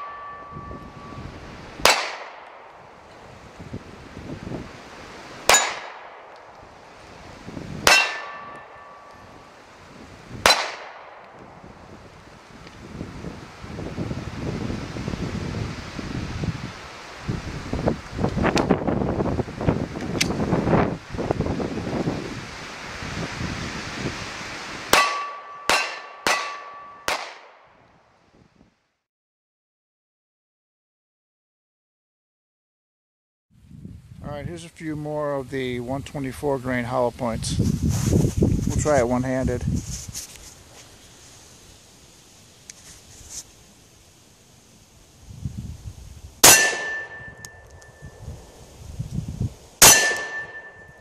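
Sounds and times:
steel plate target clanging: 0.0 - 1.2, 5.5 - 6.1, 7.9 - 9.4, 24.9 - 27.3, 46.4 - 48.1, 49.8 - 51.0
wind buffeting microphone: 0.0 - 1.9, 2.8 - 5.5, 6.6 - 10.6, 11.3 - 25.0, 33.6 - 40.5, 45.2 - 51.0
pistol shots: 1.8 - 2.7, 5.5 - 6.4, 7.8 - 9.1, 10.4 - 11.3, 24.9 - 27.6, 46.4 - 47.2, 49.8 - 50.7.

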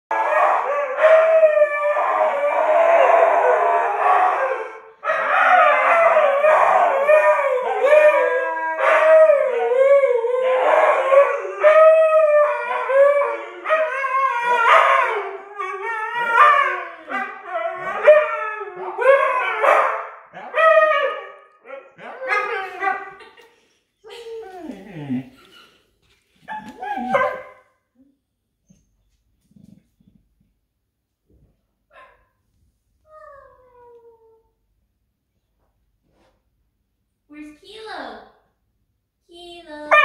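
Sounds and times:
huskies howling: 0.1 - 23.2.

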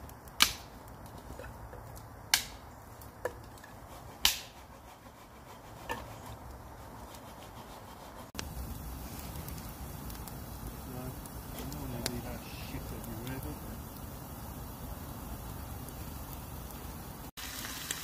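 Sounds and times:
sharp fire pops: 0.0 - 4.6, 8.4 - 18.0
campfire crackling: 0.0 - 18.0.

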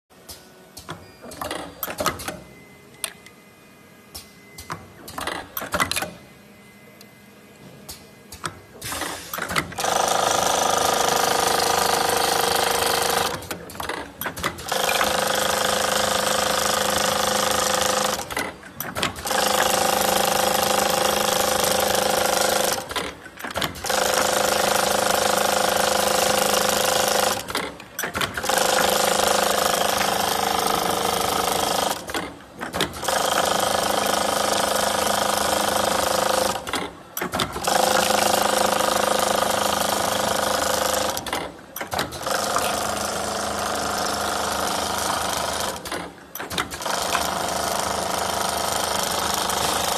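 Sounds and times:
machine whirring with a whine: 0.2 - 33.1.

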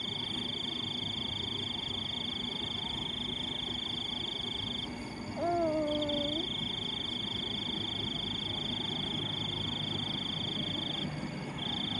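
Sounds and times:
frog trilling: 5.4 - 6.6.

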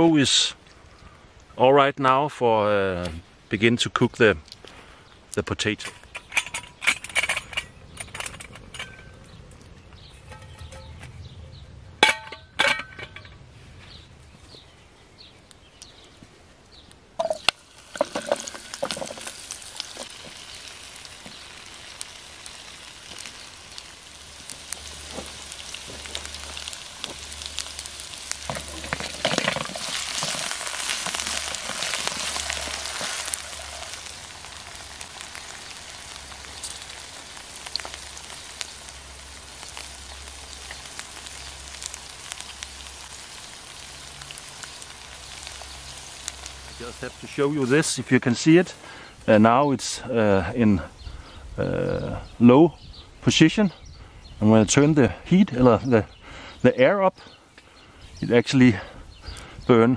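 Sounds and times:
metal pan clanks: 10.2 - 11.0, 12.0 - 13.3
potatoes sizzling in oil: 17.2 - 50.0.

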